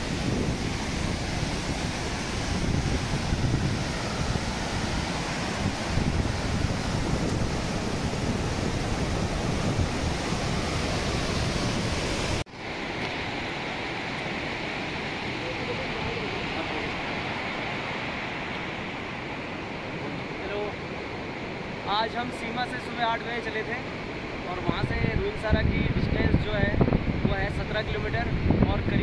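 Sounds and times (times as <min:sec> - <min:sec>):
wind buffeting microphone: 0:00.0 - 0:12.4, 0:24.6 - 0:29.0
river rushing: 0:00.0 - 0:28.5.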